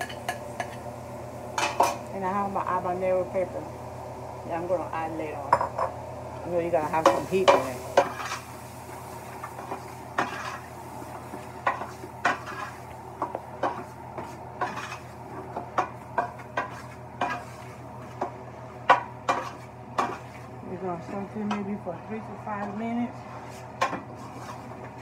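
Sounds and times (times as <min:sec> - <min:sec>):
steady low hum: 0:00.0 - 0:25.0
metal spoon scraping a pot: 0:22.7 - 0:24.9.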